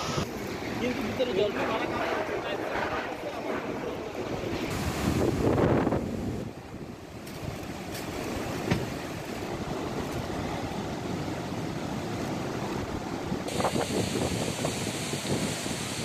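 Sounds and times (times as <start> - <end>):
hissy rush: 0.0 - 6.4, 13.4 - 16.0
wind gusting through trees: 0.0 - 16.0.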